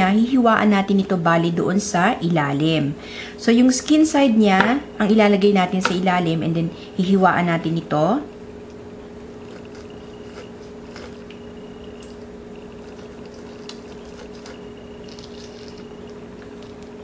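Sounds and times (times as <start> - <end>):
steady low hum: 0.0 - 17.0
wet squishing: 9.4 - 17.0
knife cutting raw meat: 9.5 - 11.4, 12.9 - 16.0.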